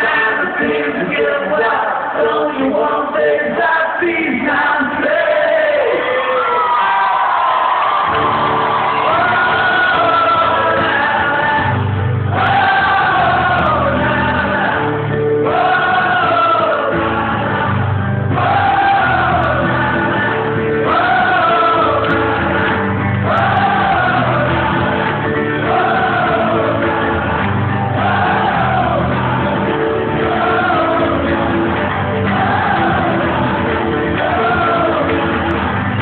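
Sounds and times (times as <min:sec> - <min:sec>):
crowd singing along: 0:00.0 - 0:06.4, 0:08.0 - 0:36.0
live rock band playing: 0:08.1 - 0:36.0
person singing: 0:08.3 - 0:36.0.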